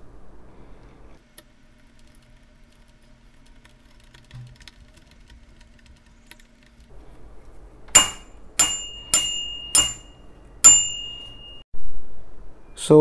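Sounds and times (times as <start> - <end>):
tricycle bell ringing: 8.0 - 11.6.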